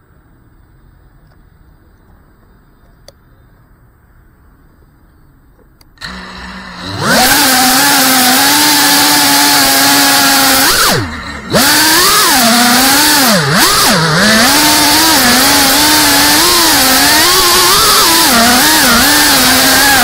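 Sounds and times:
quadcopter motors whining: 0:06.0 - 0:20.0.

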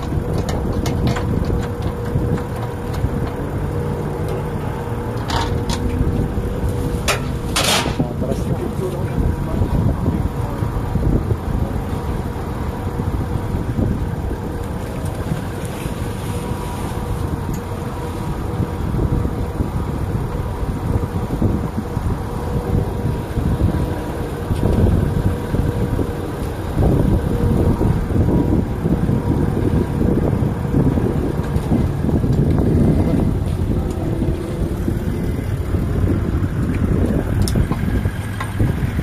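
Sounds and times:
faint engine hum: 0:00.0 - 0:39.0
wind buffeting microphone: 0:00.0 - 0:39.0.

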